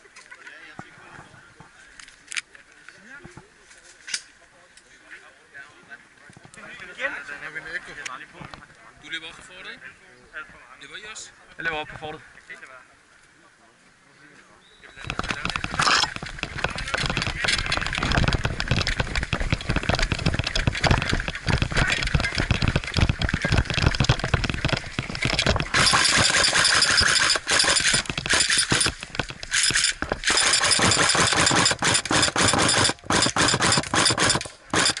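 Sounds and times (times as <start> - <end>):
rattling gear: 15.0 - 35.0
running footsteps: 15.0 - 35.0
airsoft gun full-auto bursts: 25.6 - 35.0.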